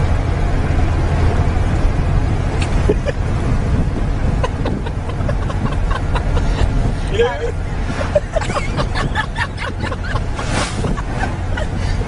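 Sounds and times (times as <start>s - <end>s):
road rumble inside car: 0.0s - 12.0s
wind buffeting microphone: 0.0s - 12.0s
wind rushing: 3.3s - 12.0s.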